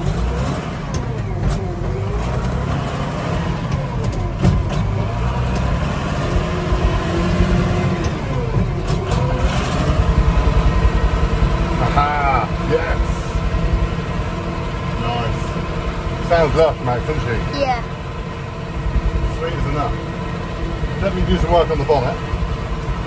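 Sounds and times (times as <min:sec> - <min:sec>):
tractor diesel engine running: 0:00.0 - 0:23.0
person talking: 0:16.3 - 0:17.9.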